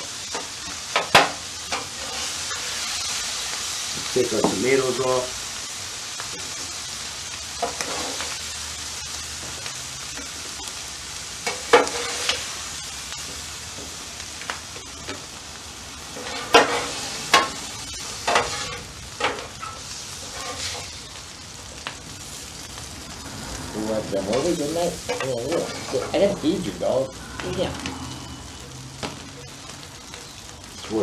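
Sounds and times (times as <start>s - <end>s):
food sizzling on griddle: 0.0s - 31.0s
metal spatula scraping and clinking: 18.2s - 20.9s, 25.1s - 26.3s.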